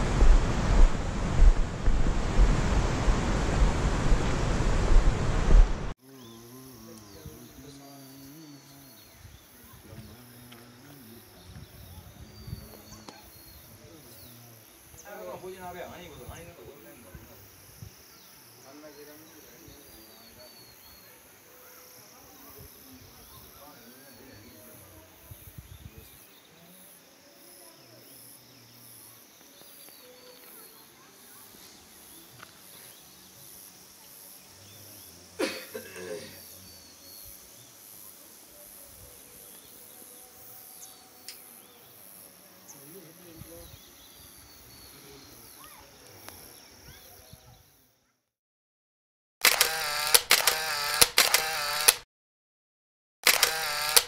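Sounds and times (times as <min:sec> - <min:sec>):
low thumps: 0:00.0 - 0:05.9
wind buffeting microphone: 0:00.0 - 0:05.9
insects trilling: 0:06.0 - 0:47.9, 0:49.4 - 0:51.9, 0:53.3 - 0:54.0
faint bird chirps: 0:17.3 - 0:48.2.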